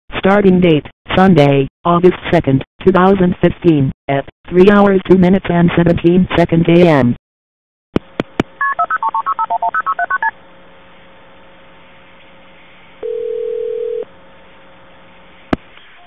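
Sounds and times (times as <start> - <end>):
telephone ring tone: 8.6 - 10.3, 13.0 - 14.1
two-tone dial beeps: 8.6 - 10.3.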